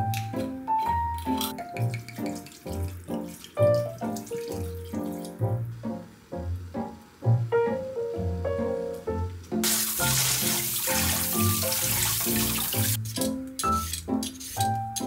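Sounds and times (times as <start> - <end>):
background music: 0.0 - 15.0
tap water running onto meat: 1.8 - 5.5, 9.6 - 13.0.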